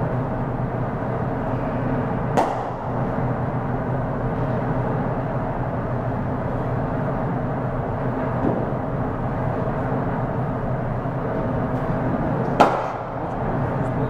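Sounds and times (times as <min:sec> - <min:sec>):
steady background hum: 0:00.0 - 0:14.0
cricket bat striking ball: 0:02.3 - 0:02.8, 0:12.6 - 0:13.2.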